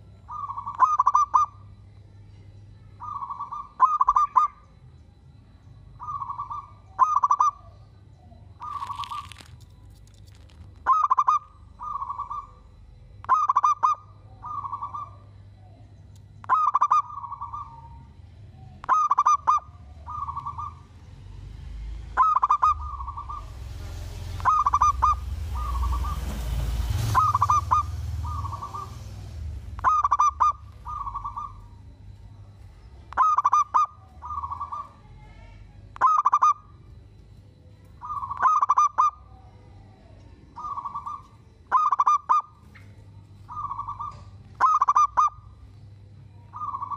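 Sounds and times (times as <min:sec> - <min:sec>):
dove cooing: 0:00.0 - 0:01.7, 0:03.0 - 0:04.6, 0:06.0 - 0:07.8, 0:08.6 - 0:09.6, 0:10.3 - 0:15.3, 0:16.4 - 0:21.0, 0:22.1 - 0:26.5, 0:27.1 - 0:35.1, 0:38.0 - 0:42.7, 0:43.4 - 0:45.7, 0:46.4 - 0:46.9
rushing hiss with low rumble: 0:23.1 - 0:29.8.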